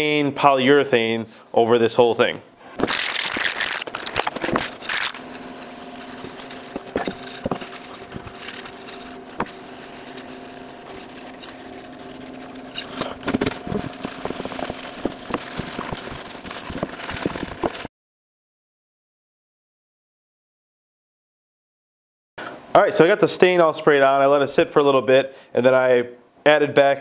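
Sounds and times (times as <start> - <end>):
aerosol can rattling: 2.8 - 17.9
rag rubbing wood: 2.9 - 17.9
aerosol spray hissing: 5.1 - 12.4.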